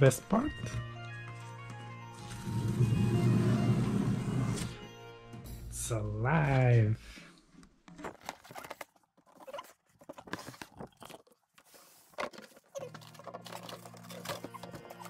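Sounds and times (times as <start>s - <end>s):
cardboard crunching and scraping: 7.8s - 15.0s.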